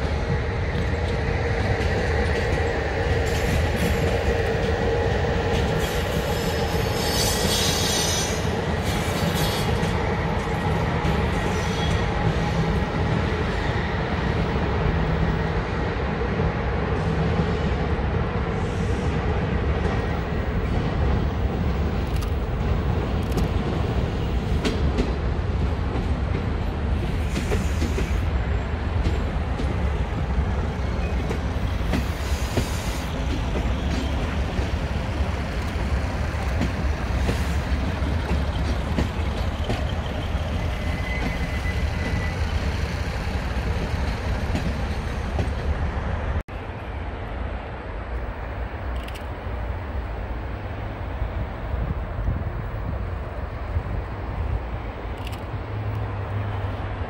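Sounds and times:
diesel train engine rumble: 0.0s - 57.0s.

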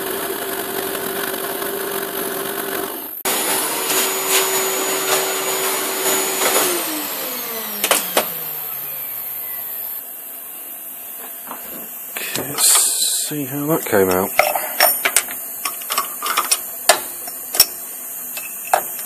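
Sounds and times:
shop vacuum motor winding down: 0.0s - 10.0s.

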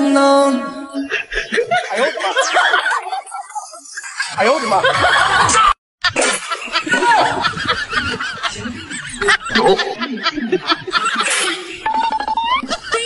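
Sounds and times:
canned laughter: 0.9s - 13.0s.

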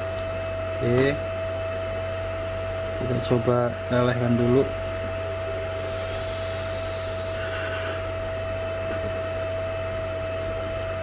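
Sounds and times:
constant whine: 0.0s - 11.0s
electrical hum: 0.0s - 11.0s
fan whir: 0.0s - 11.0s.

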